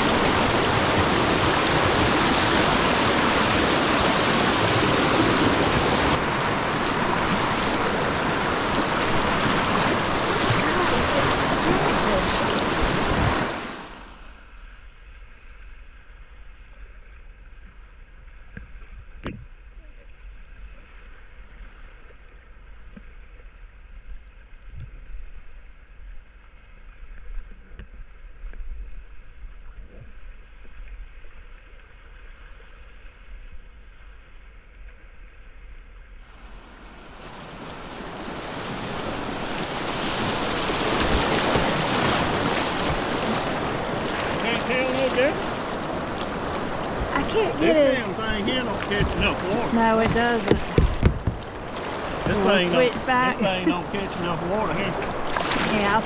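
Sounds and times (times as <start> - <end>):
paddle knocks and splashes: 0.0 - 13.8, 38.2 - 56.0
rushing whitewater: 0.0 - 14.4, 36.2 - 56.0.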